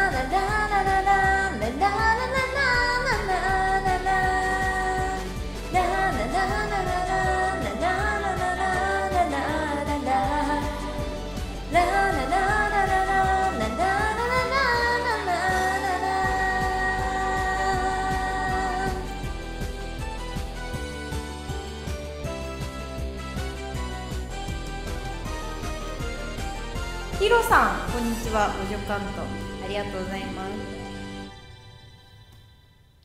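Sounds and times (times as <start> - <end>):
woman singing pop song: 0.0 - 20.0
karaoke backing track: 0.0 - 31.3.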